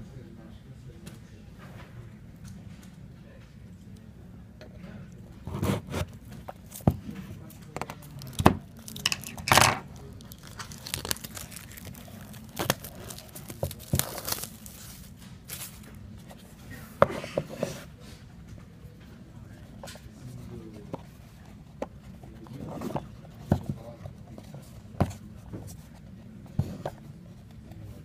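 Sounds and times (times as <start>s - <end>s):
plastic wrap crinkling and tearing: 8.0s - 15.9s.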